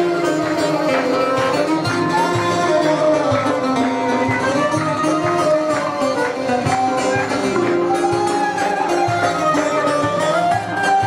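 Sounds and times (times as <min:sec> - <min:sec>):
bowed fiddle melody: 0:00.0 - 0:11.0
lute strummed: 0:00.0 - 0:11.0.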